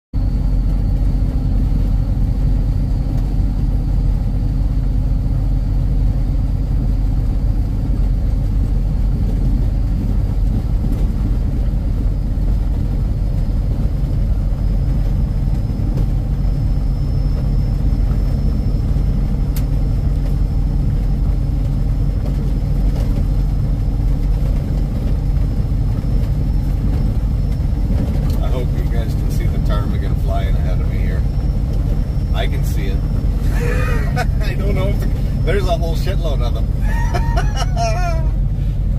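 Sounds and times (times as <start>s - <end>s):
vehicle engine and tyres rumbling: 0.2s - 38.9s
faint high whine: 11.4s - 38.9s.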